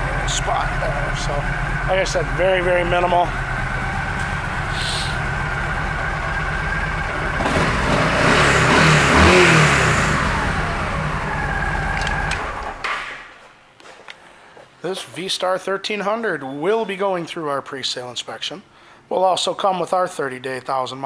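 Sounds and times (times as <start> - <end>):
motorcycle engine idling and revving: 0.0 - 12.8.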